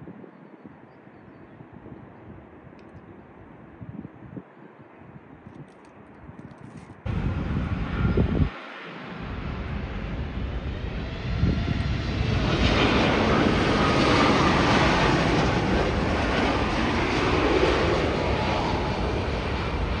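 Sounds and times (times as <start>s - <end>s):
jet engines passing overhead: 7.1s - 20.0s.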